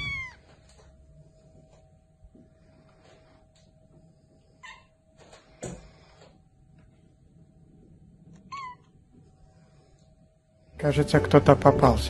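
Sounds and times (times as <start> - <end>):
cat calling: 0.0 - 0.5, 4.6 - 4.9, 8.4 - 9.0.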